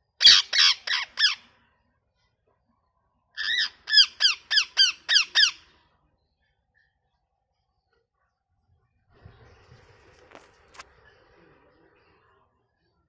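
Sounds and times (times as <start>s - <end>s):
parakeet squawking: 0.2s - 1.4s, 3.4s - 5.7s.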